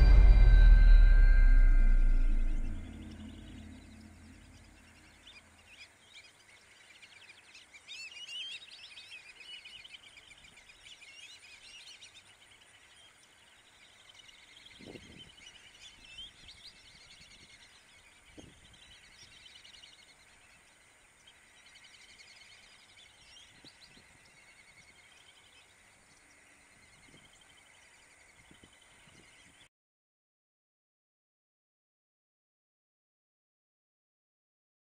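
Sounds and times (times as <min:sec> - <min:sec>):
soft low thumps: 0:00.0 - 0:04.8.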